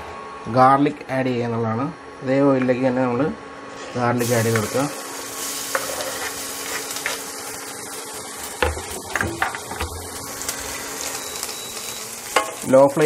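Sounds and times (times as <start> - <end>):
garlic sizzling in oil: 4.2 - 13.0.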